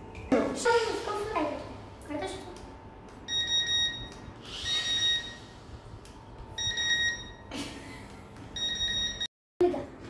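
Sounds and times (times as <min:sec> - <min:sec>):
high electronic beep: 0:03.3 - 0:05.5, 0:06.6 - 0:07.5.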